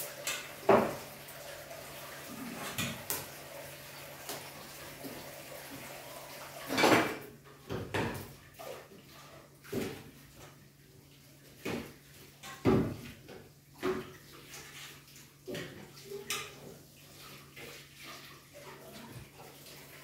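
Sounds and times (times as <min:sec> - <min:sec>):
dishes clattering in a sink: 0:00.0 - 0:01.1, 0:02.2 - 0:03.4, 0:06.6 - 0:10.6, 0:11.5 - 0:20.0
running water: 0:00.0 - 0:20.0.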